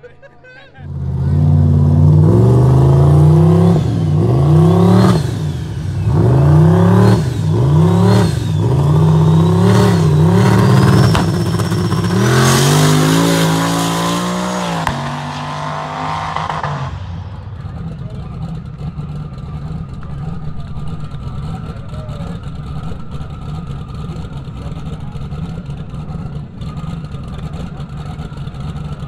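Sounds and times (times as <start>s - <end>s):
car engine revving at full throttle: 0.9s - 29.0s
high whine: 3.9s - 17.8s.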